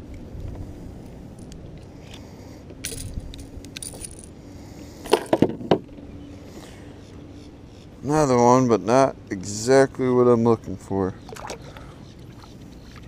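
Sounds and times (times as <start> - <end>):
metal fishing tackle jingling: 2.8 - 4.3, 5.0 - 5.4.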